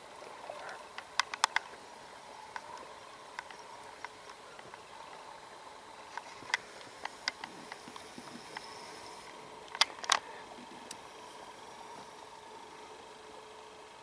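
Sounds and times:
faint steady hiss: 0.0s - 14.0s
sharp clicks and knocks: 0.6s - 1.8s, 6.1s - 8.7s.

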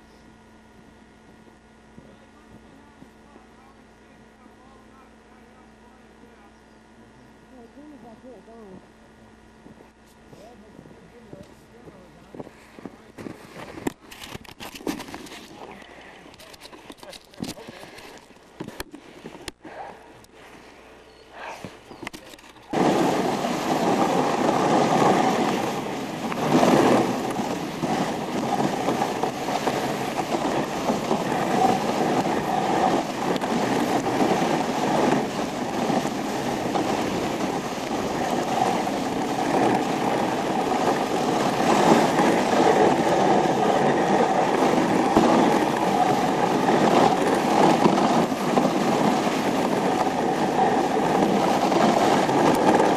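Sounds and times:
sled runners sliding over snow: 9.7s - 52.9s
wind on microphone: 22.7s - 52.9s.

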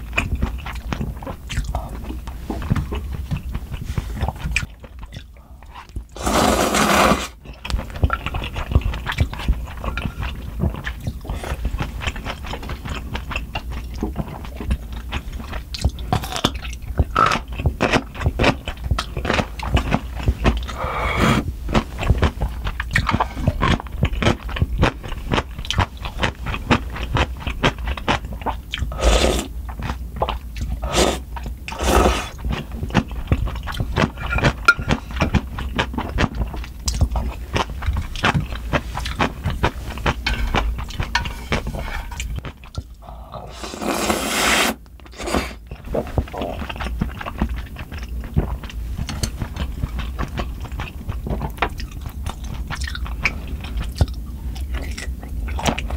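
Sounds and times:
slurping and chewing noodles: 0.0s - 55.9s
spoon scraping metal pan: 40.2s - 42.4s.

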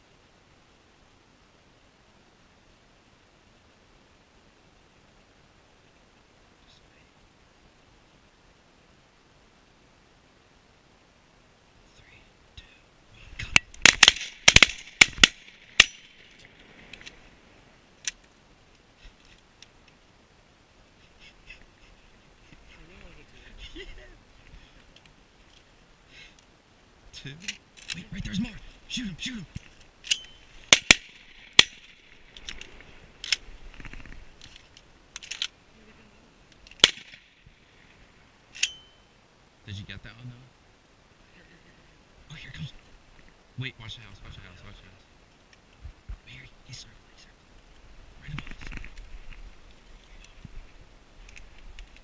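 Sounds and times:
faint clicks: 13.4s - 17.2s, 18.0s - 20.0s, 24.4s - 26.5s, 31.6s - 35.6s, 47.5s - 52.0s
shotgun shots: 13.8s - 16.1s, 30.7s - 32.0s, 36.8s - 37.2s.

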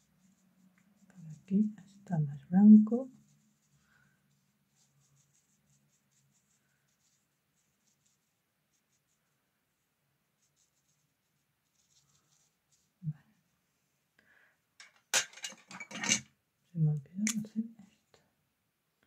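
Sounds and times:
brush strokes on paper: 0.0s - 14.1s.

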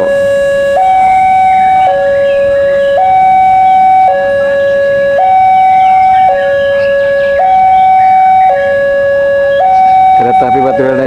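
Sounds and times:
two-tone level crossing alarm: 0.0s - 11.0s.

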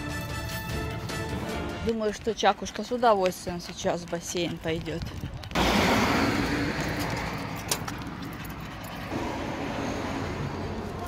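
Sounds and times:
car driving past: 5.6s - 7.9s, 9.0s - 11.0s.

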